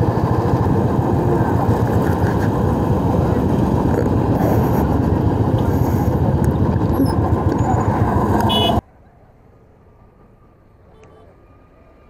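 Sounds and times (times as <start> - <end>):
wind rush on microphone: 0.0 - 8.5
motorcycle engine: 0.0 - 8.8
road noise: 0.0 - 12.0.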